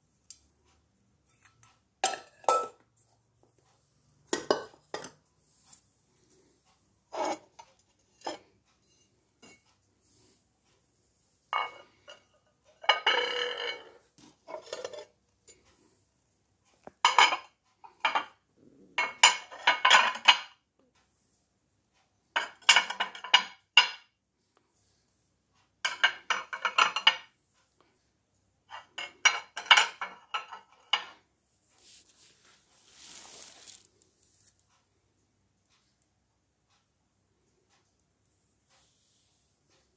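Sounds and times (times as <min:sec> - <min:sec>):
ceramic plates clinking: 0:01.3 - 0:02.8, 0:04.3 - 0:05.2, 0:07.1 - 0:09.7, 0:11.5 - 0:15.6, 0:17.0 - 0:18.4, 0:19.0 - 0:20.6, 0:22.3 - 0:24.1, 0:25.8 - 0:27.4, 0:28.7 - 0:31.2
soft scraping: 0:31.6 - 0:34.8.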